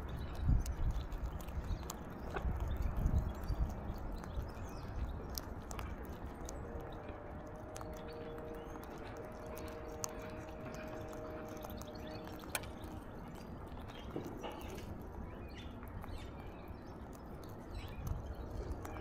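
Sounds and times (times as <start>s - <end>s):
low background rumble: 0.0s - 19.0s
seed cracking clicks: 0.0s - 19.0s.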